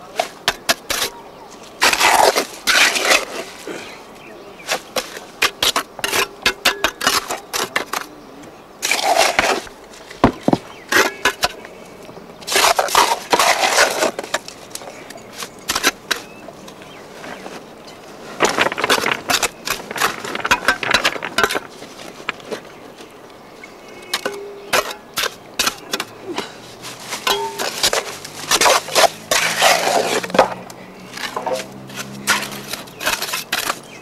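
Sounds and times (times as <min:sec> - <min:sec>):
clicks and knocks of grit and stone: 0:00.1 - 0:01.2, 0:01.8 - 0:03.7, 0:04.7 - 0:08.1, 0:08.8 - 0:11.7, 0:12.4 - 0:17.5, 0:18.2 - 0:23.1, 0:23.9 - 0:34.0
trowel scraping gritty mortar: 0:01.8 - 0:03.7, 0:08.8 - 0:10.2, 0:12.4 - 0:17.5, 0:18.2 - 0:22.6, 0:24.0 - 0:34.0.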